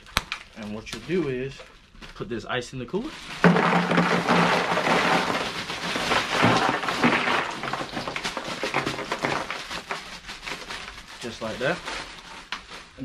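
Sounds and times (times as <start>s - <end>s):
ice cubes poured into plastic cooler: 3.2s - 11.8s.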